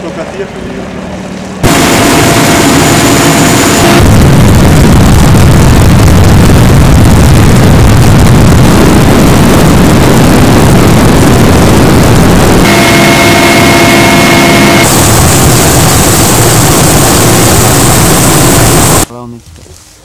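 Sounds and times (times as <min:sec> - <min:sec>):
helicopter rotor and engine noise: 0:00.0 - 0:04.8, 0:08.7 - 0:19.1
high turbine whine: 0:00.0 - 0:19.1.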